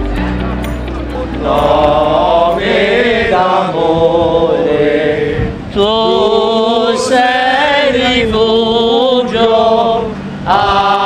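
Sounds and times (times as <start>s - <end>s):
men and boys singing a hymn: 1.3s - 11.0s.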